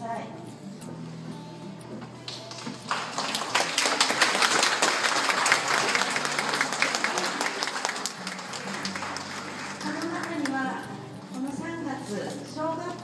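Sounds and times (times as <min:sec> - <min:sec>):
crowd applauding: 0:02.3 - 0:10.7.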